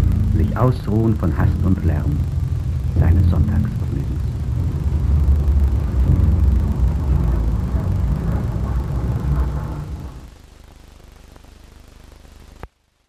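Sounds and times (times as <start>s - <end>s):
passing cars rumbling: 0.0s - 10.3s.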